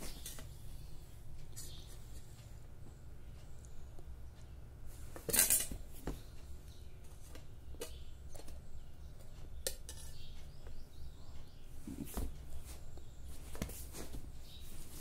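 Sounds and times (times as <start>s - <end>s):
cutlery clinking and scraping dish: 5.3s - 5.8s, 9.7s - 10.2s.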